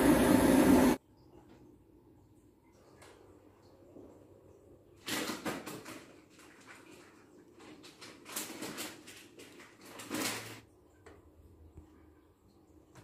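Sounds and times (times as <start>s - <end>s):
crackly clattering rustle: 5.0s - 10.7s.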